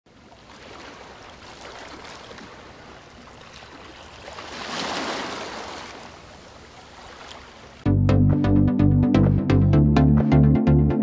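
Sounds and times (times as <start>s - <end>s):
rushing water: 0.1s - 7.9s.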